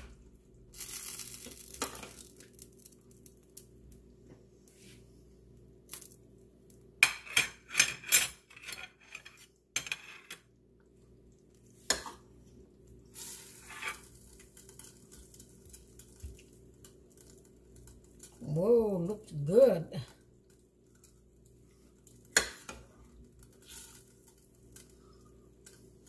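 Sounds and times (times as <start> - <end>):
metal utensils clinking on pot: 7.0 - 10.4.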